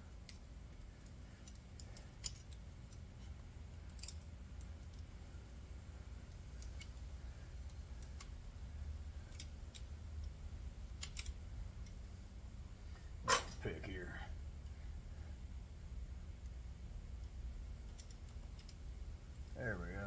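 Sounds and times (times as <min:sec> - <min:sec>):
low steady hum: 0:00.0 - 0:20.0
metallic clicks: 0:00.2 - 0:05.1, 0:06.3 - 0:08.4, 0:09.2 - 0:12.0, 0:17.2 - 0:18.8.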